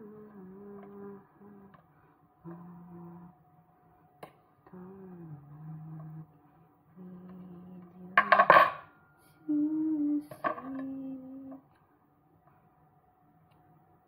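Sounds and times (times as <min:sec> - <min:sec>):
person humming softly: 0:00.0 - 0:03.4, 0:04.6 - 0:08.5, 0:09.2 - 0:11.8.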